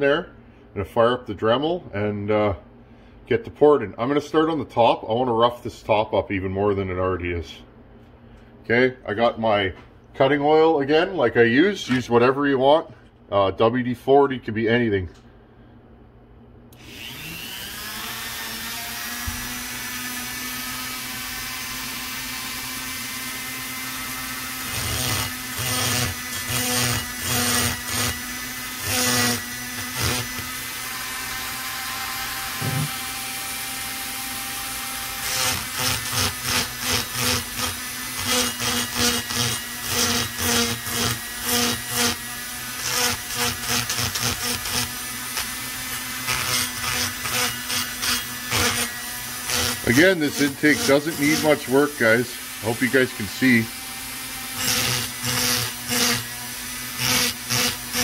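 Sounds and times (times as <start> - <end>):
rotary tool whine: 16.7 - 58.0
burr grinding metal: 34.9 - 58.0.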